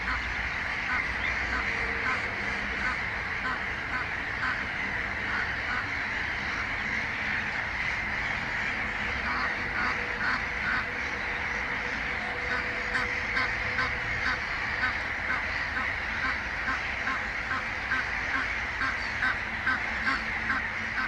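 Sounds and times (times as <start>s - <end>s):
goose honking: 0.0s - 21.0s.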